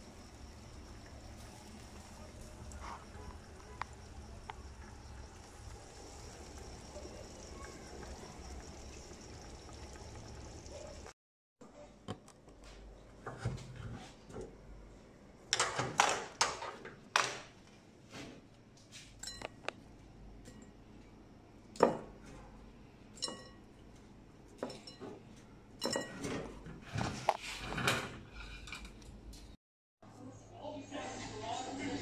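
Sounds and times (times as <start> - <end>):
dishes and utensils clinking: 23.2 - 23.8, 24.6 - 29.0.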